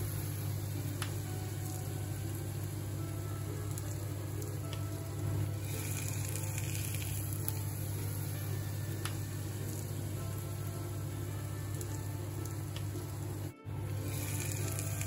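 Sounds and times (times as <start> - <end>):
fish sizzling in hot oil: 0.0 - 15.0.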